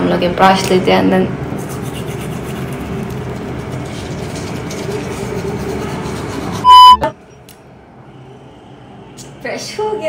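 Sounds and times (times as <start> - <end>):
toothbrush scrubbing teeth: 1.6 - 6.7
loud electronic beep: 6.6 - 7.1.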